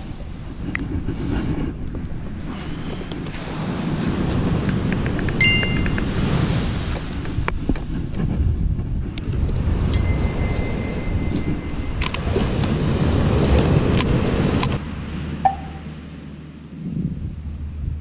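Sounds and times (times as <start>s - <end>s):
wind buffeting microphone: 0.0s - 18.0s
high ringing tone: 5.4s - 6.2s, 10.0s - 12.4s, 15.4s - 16.0s.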